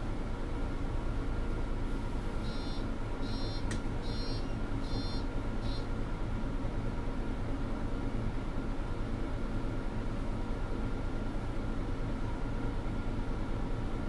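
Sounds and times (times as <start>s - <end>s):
bus engine running: 0.0s - 14.0s
electronic signal beeps: 2.4s - 5.9s
sharp click: 3.6s - 3.9s.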